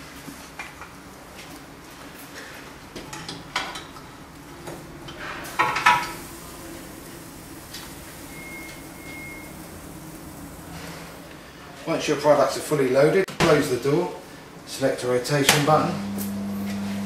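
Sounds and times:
steady low hum: 4.1 - 11.7
short high beeps: 8.2 - 9.6.

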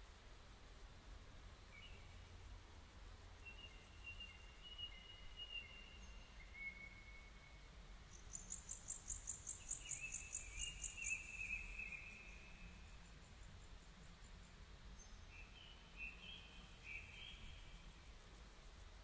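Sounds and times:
songbirds whistling: 8.4 - 12.7.

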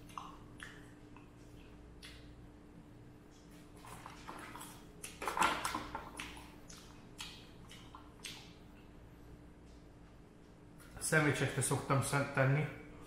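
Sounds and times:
faint steady hum: 0.0 - 13.0
person eating crunchy food: 3.4 - 8.6.

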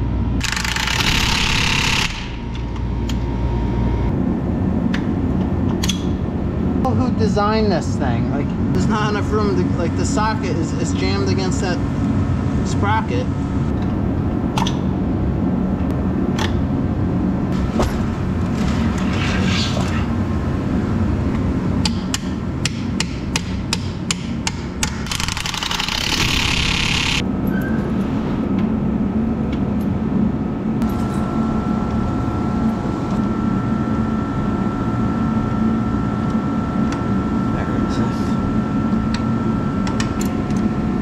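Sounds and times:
steady low hum: 0.0 - 41.0
steady high tone: 2.3 - 4.4.

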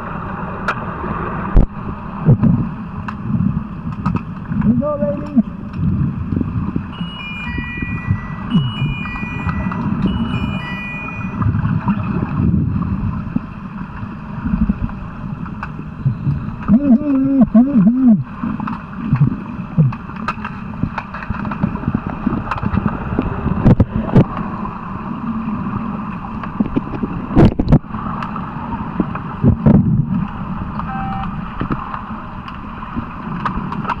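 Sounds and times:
faint hum: 0.0 - 20.2
underwater water rush: 0.0 - 34.0
scattered clicks: 8.5 - 10.6.

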